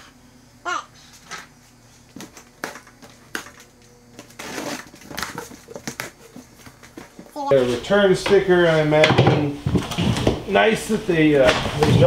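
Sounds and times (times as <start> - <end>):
cardboard rustling and scraping: 1.0 - 7.9.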